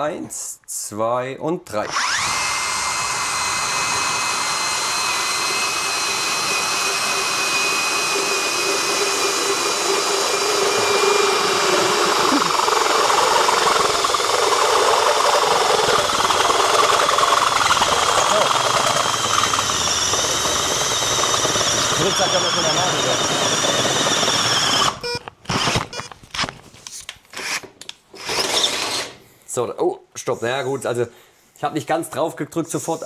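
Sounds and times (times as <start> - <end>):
drill cutting steel: 1.8 - 26.0, 27.3 - 27.6, 28.2 - 29.2
drill motor whine: 1.8 - 26.1, 28.2 - 29.1.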